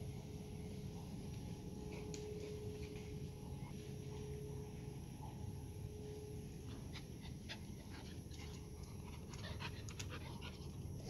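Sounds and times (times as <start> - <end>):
dog panting: 6.9 - 11.0.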